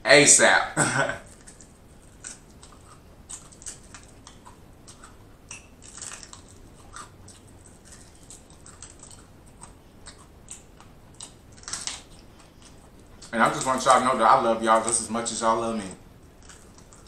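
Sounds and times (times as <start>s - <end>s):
chewing crunches: 1.2s - 14.2s, 16.1s - 17.0s.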